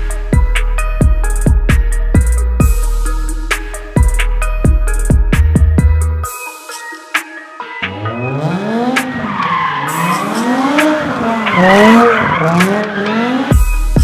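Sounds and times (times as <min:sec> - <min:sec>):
music: 0:00.0 - 0:14.0
car engine revving: 0:07.8 - 0:14.0
tyres squealing: 0:09.0 - 0:13.6.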